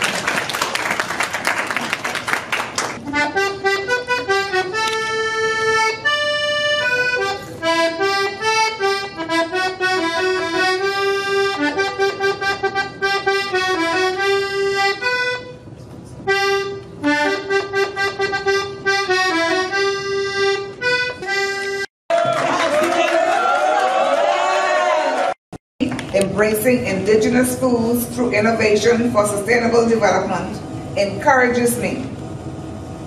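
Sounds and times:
button accordion playing a tune: 3.0 - 21.9.

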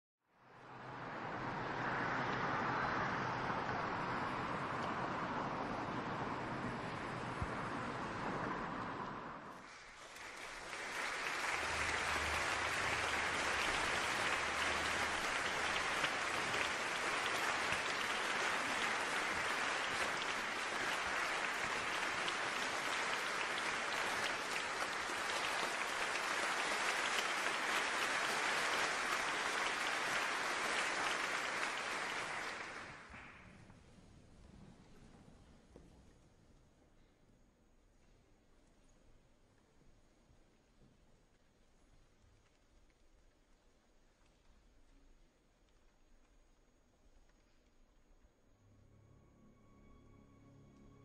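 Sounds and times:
audience applauding: 9.5 - 33.6.

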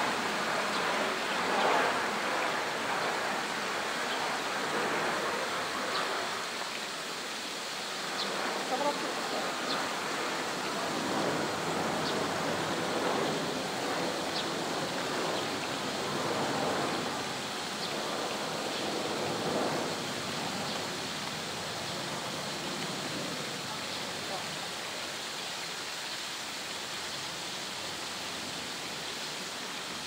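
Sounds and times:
steady rushing noise: 0.0 - 30.0.

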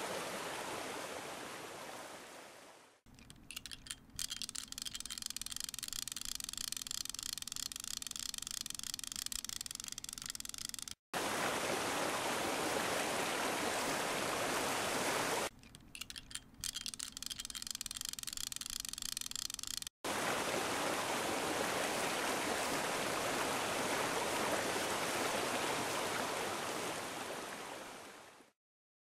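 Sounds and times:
rushing water noise: 0.0 - 3.0, 11.2 - 15.5, 20.0 - 28.6.

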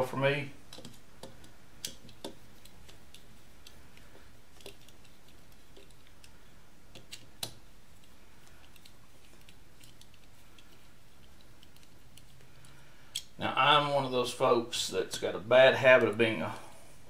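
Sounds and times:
allen key clicking on screws: 4.6 - 13.3.

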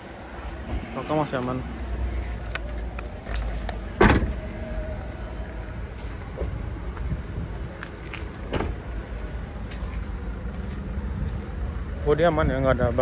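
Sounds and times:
car tailgate shutting thump: 4.0 - 4.4, 8.4 - 8.8.

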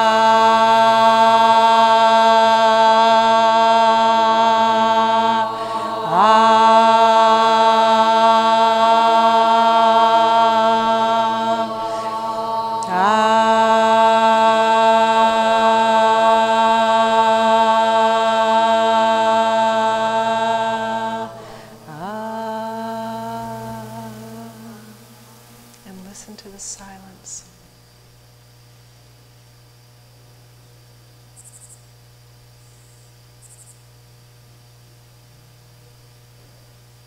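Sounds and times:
woman chanting in a monotone: 0.0 - 27.7.

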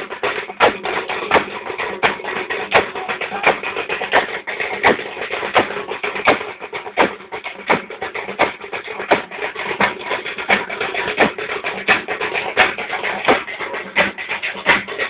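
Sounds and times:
drums in driving rhythm: 0.0 - 15.0
crowd din: 2.7 - 4.3.

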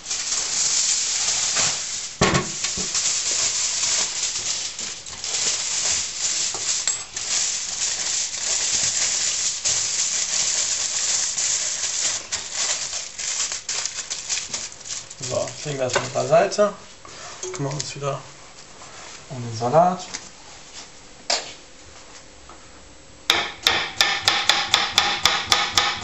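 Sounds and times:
aluminium foil crinkling: 0.0 - 16.6.

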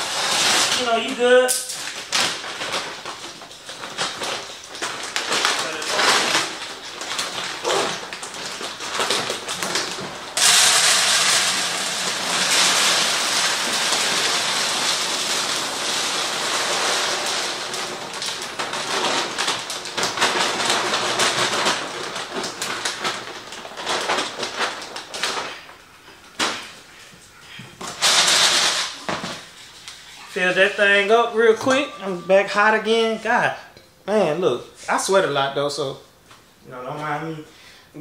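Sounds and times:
dry kibble pouring into container: 10.3 - 24.8.

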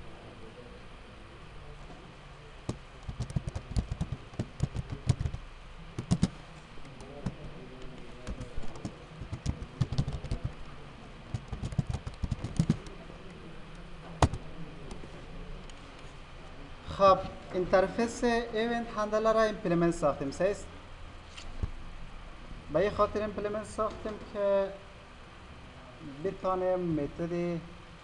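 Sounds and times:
typing on computer keyboard: 2.7 - 5.4, 6.0 - 7.4, 8.2 - 10.6, 11.3 - 12.9.

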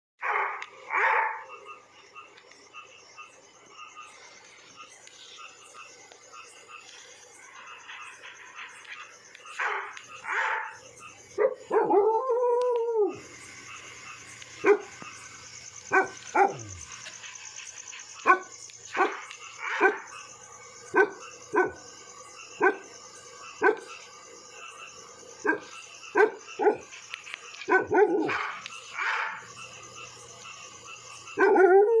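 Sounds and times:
dog howling: 11.4 - 13.3, 15.9 - 16.8, 27.7 - 28.6, 31.4 - 32.0.

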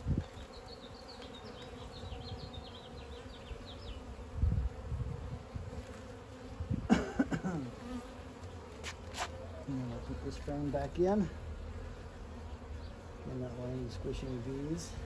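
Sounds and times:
wood squeaking against hive box: 0.0 - 4.2, 7.7 - 11.1
honey bees buzzing: 0.0 - 15.0.

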